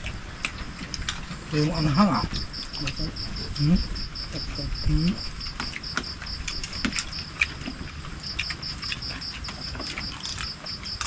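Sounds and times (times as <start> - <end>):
insect chirping: 0.0 - 11.0.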